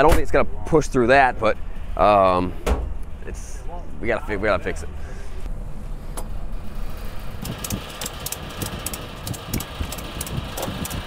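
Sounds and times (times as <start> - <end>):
steady low hum: 0.3 - 11.0
ratchet strap clicking: 7.4 - 11.0.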